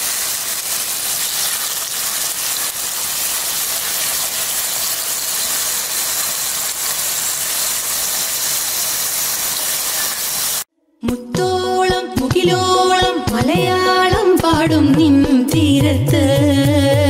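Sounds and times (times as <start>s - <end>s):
squid sizzling in hot oil: 0.0s - 10.7s.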